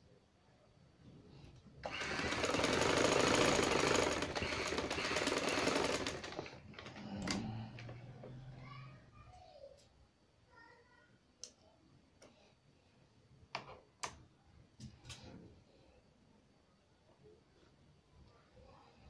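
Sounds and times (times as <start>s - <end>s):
sewing machine stitching: 1.8s - 8.0s.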